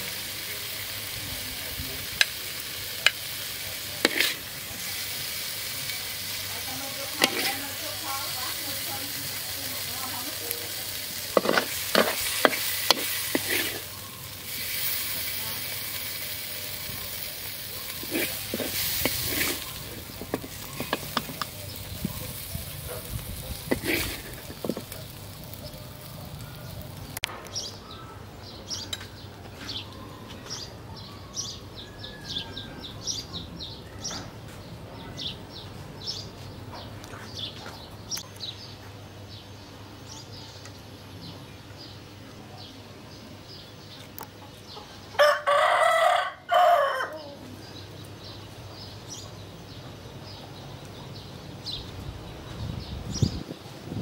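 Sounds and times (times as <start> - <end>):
rooster crowing: 45.2 - 47.4.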